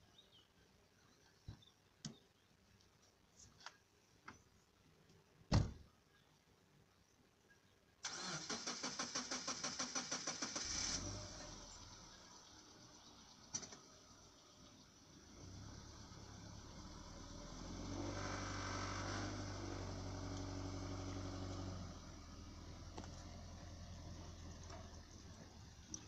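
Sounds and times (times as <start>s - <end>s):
thump: 5.5s - 5.8s
car starter cranking engine: 8.0s - 12.3s, 17.8s - 22.2s
car engine idling: 15.0s - 26.0s.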